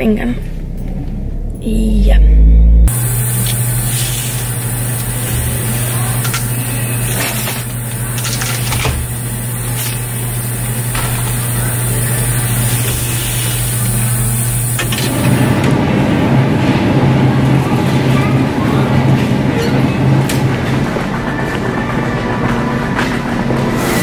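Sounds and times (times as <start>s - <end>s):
low machine hum: 0.0s - 24.0s.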